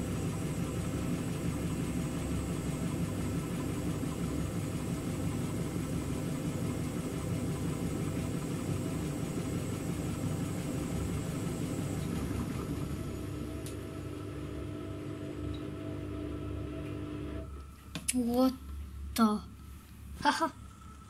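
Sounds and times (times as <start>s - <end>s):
washing machine motor hum: 0.0s - 21.0s.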